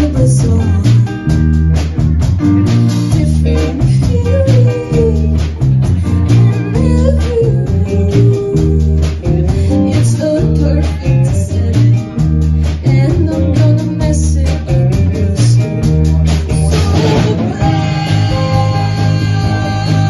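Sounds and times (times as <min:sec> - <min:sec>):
woman singing into a microphone: 0:00.0 - 0:01.3, 0:03.1 - 0:05.5, 0:06.4 - 0:12.2, 0:12.8 - 0:15.7, 0:16.4 - 0:20.0
electric bass line: 0:00.0 - 0:20.0
electric guitar: 0:00.0 - 0:20.0.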